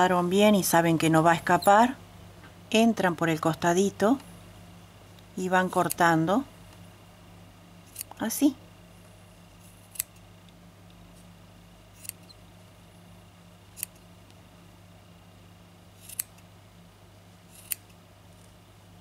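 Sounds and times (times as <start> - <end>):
scissors snipping yarn: 5.6 - 6.2, 7.9 - 8.3, 9.7 - 10.2, 12.0 - 12.3, 16.0 - 16.4, 17.5 - 18.0.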